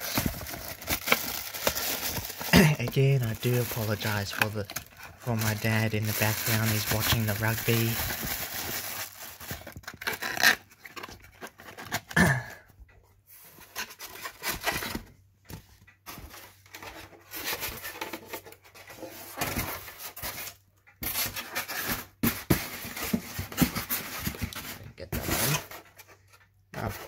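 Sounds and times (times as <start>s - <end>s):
plastic wrapping rustling: 0.0s - 12.0s.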